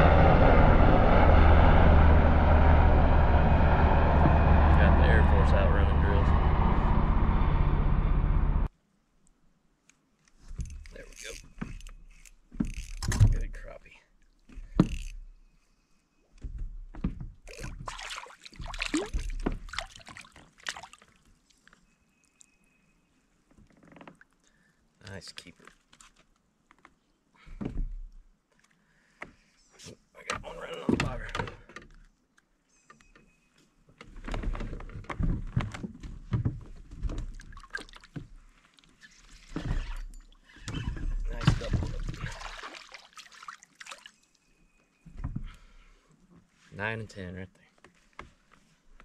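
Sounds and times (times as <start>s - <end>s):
water sloshing against hull: 10.4s - 22.6s, 35.3s - 46.6s
fish splashing in water: 17.6s - 21.6s, 37.4s - 38.2s, 41.4s - 44.3s.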